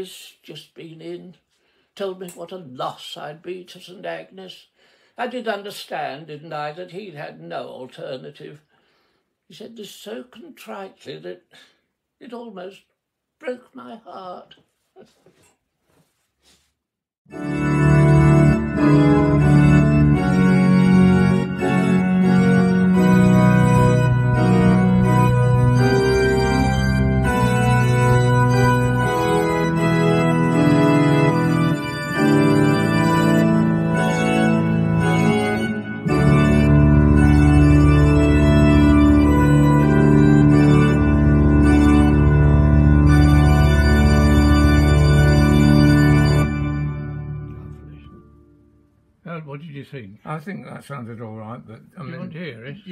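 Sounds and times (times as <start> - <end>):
pipe organ chords: 17.3 - 49.2.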